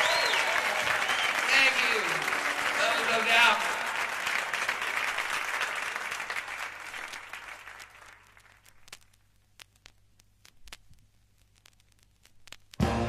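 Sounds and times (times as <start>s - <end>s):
audience applause: 0.0s - 8.6s
vinyl surface clicks and pops: 8.3s - 12.8s.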